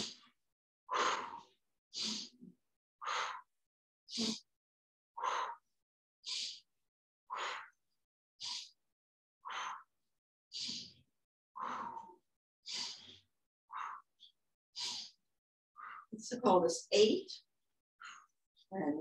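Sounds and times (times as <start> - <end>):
woman breathing rhythmically: 0.0 - 0.3, 0.9 - 4.5, 5.2 - 8.8, 9.4 - 11.0, 11.6 - 16.2, 18.0 - 18.4.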